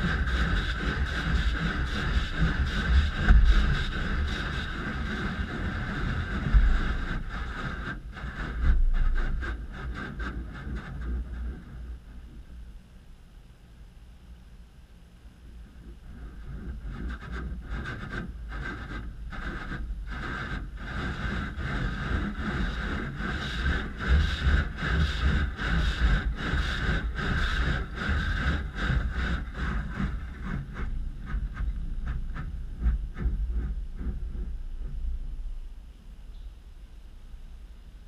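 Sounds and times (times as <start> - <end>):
wash machinery rumble: 0.0 - 13.1, 15.6 - 36.2.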